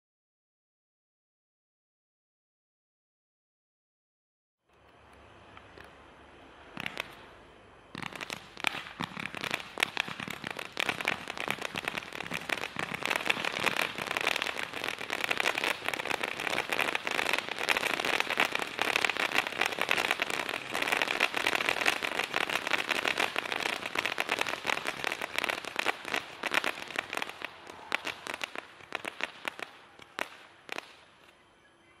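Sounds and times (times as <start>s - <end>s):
fireworks crackling: 4.7s - 31.4s
fireworks cake firing: 6.7s - 31.4s.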